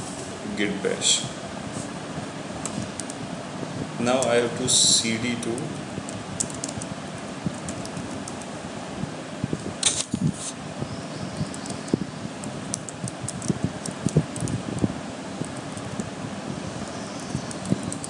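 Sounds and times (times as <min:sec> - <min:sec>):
steady fan-like hum: 0:00.0 - 0:18.0
computer keyboard keys clicking: 0:02.6 - 0:03.2, 0:05.4 - 0:06.9, 0:07.5 - 0:08.5, 0:11.5 - 0:16.1, 0:17.3 - 0:18.0.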